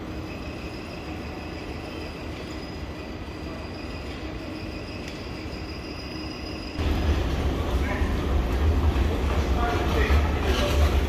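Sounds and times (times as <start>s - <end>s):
faint high whine: 0.0s - 8.3s
station hall hum: 0.0s - 11.0s.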